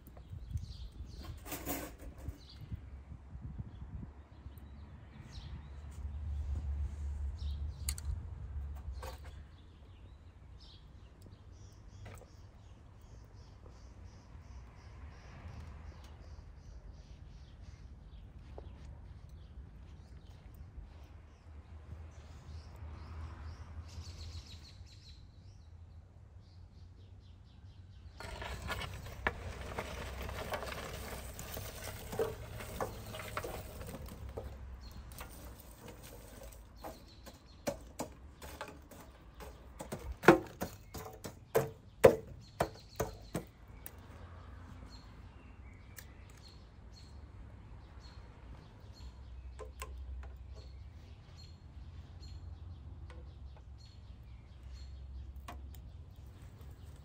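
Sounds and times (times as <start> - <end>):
rustling scraping noise: 0.7 - 2.8, 28.2 - 43.4
sharp knocks and clatters: 28.2 - 43.9.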